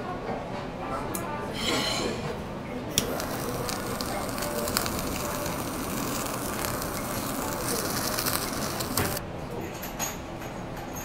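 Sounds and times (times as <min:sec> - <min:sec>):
blowtorch clicking alight: 0:02.9 - 0:09.2
blowtorch flame hissing: 0:02.9 - 0:09.2.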